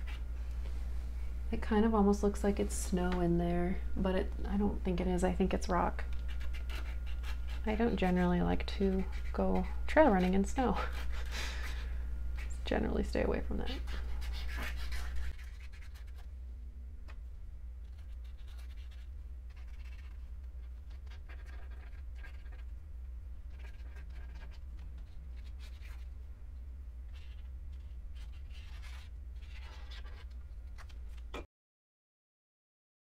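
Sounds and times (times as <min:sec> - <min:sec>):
steady low hum: 0:00.0 - 0:31.5
drawing tool scratching paper: 0:06.1 - 0:08.2, 0:08.8 - 0:11.8, 0:13.8 - 0:16.2, 0:17.8 - 0:22.7, 0:23.5 - 0:26.0.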